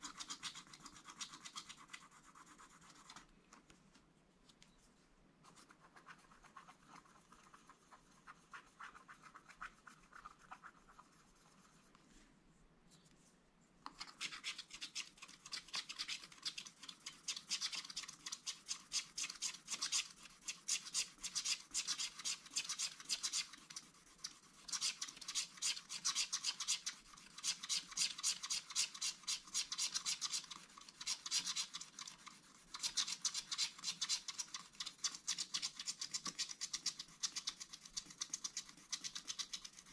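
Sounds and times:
stylus scratching a card: 0.0s - 3.2s, 13.9s - 39.9s.

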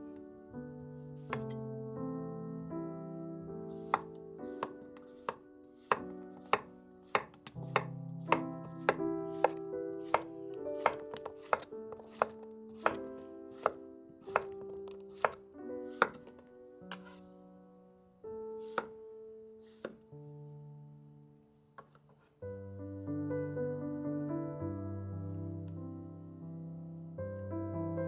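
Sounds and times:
soft background music: 0.0s - 28.0s
knife cutting on wooden board: 1.2s - 1.6s, 3.8s - 17.3s, 18.6s - 19.0s, 19.6s - 20.0s.

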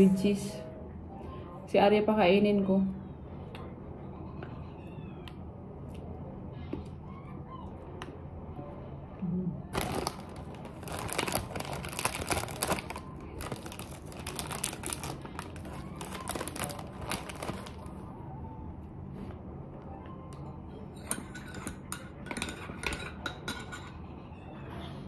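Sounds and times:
food packaging crinkling: 9.7s - 18.1s.

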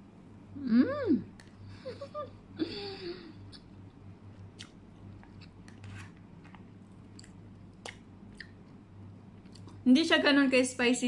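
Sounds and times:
steady low hum: 0.0s - 11.0s
person chewing rice: 4.2s - 9.8s.

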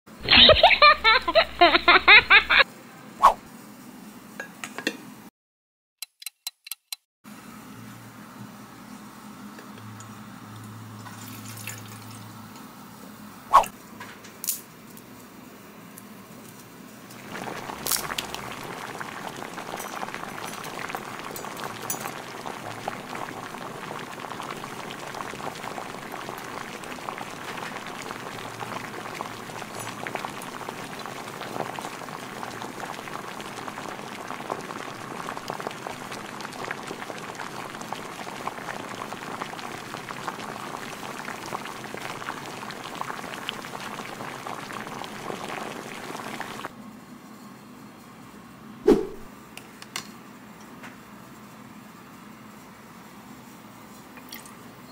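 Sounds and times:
water pouring into metal pot: 11.0s - 12.4s, 17.2s - 46.7s
water bubbling in pot: 17.2s - 46.7s.

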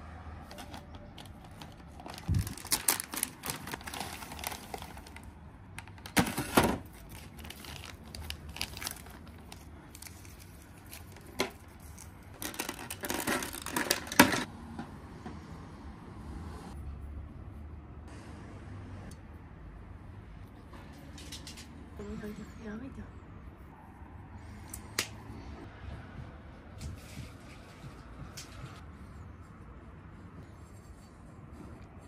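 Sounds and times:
plastic bags crinkling: 0.6s - 14.4s.

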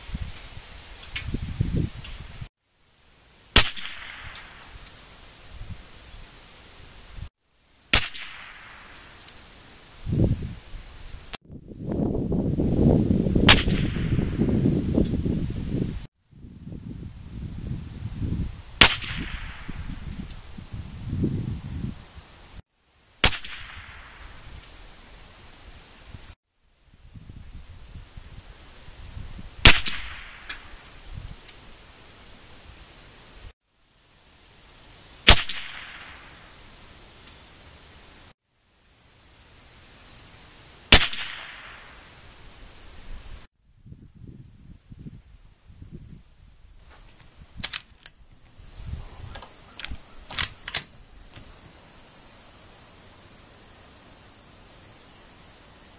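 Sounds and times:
high insect buzz: 0.0s - 55.9s
rifle shots: 3.6s - 4.4s, 8.0s - 8.8s, 40.9s - 41.7s
rifle lever clicking: 49.8s - 50.9s.

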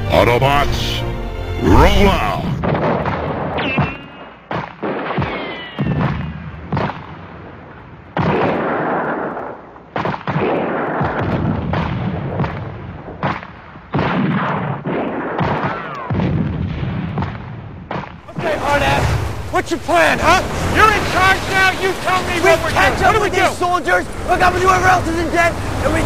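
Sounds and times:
explosions: 1.6s - 23.6s
gunfire: 1.7s - 19.4s
whistling tones gliding down: 3.6s - 4.5s, 5.3s - 6.4s.

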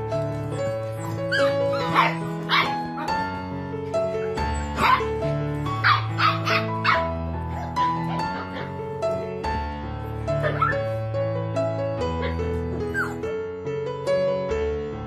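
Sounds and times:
background music with held notes: 0.0s - 15.0s
puppies barking and yipping: 0.2s - 8.9s, 10.4s - 11.0s, 12.2s - 13.2s.

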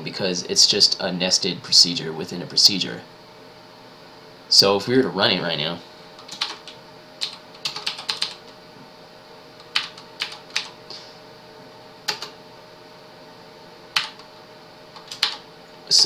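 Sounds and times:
computer keyboard typing: 6.2s - 8.5s, 9.6s - 10.8s, 12.1s - 12.4s, 13.9s - 14.3s, 14.9s - 15.4s.

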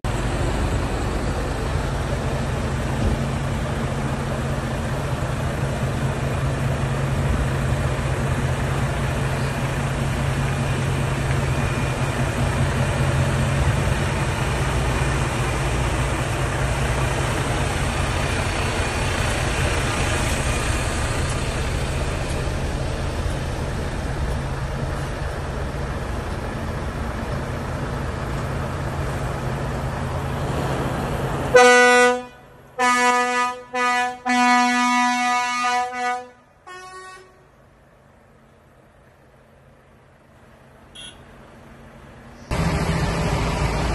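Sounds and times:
heavy vehicle engine and road noise: 0.0s - 43.9s
air horn blasts: 31.5s - 37.4s, 41.0s - 41.2s.

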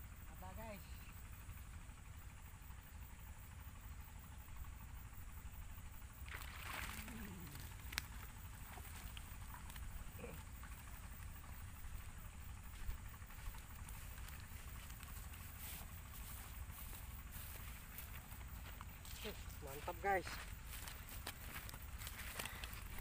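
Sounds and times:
rustle of tall grass: 12.6s - 23.0s.

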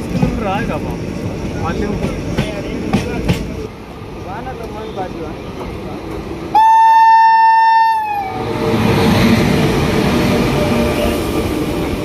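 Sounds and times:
train running on track: 0.0s - 12.0s
train horn blast: 6.5s - 8.4s.

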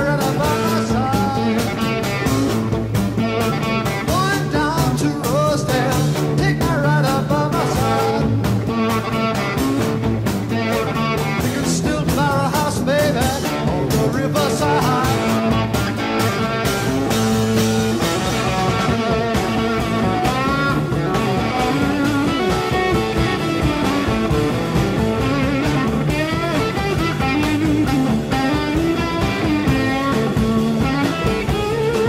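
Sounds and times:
electric guitar solo: 0.0s - 6.2s, 6.8s - 32.0s
bass and drums: 0.0s - 32.0s.

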